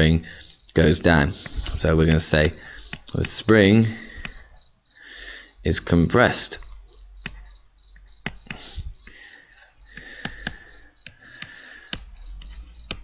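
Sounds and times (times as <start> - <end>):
high repeating chirping: 0.0 - 13.0
computer mouse clicks: 2.8 - 3.4, 6.6 - 8.8, 9.9 - 13.0.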